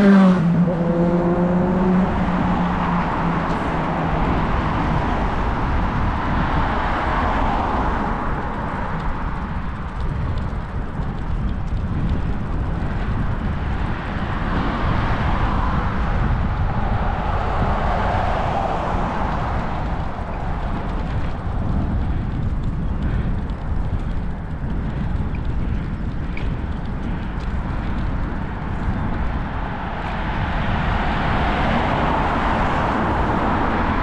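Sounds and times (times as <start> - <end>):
road traffic passing: 0.0 - 34.0
wind rumble on microphone: 0.0 - 34.0.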